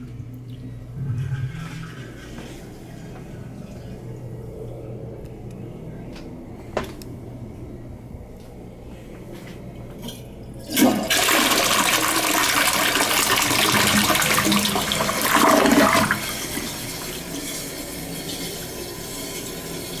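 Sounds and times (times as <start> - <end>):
toilet flushing: 10.6 - 20.0
water running as bowl refills: 10.6 - 20.0.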